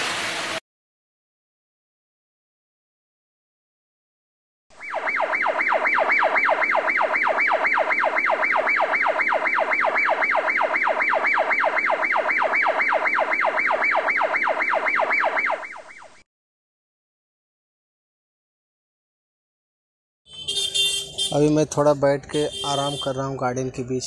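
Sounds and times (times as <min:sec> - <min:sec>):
electronic siren yelping: 0:04.7 - 0:16.2.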